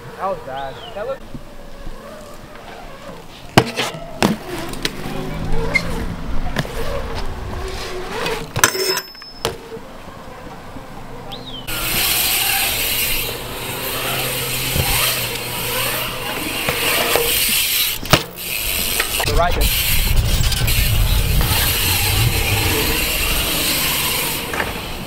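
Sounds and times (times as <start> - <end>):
bike tyres rolling on concrete: 0.0 - 25.0
wind on microphone: 19.2 - 24.4.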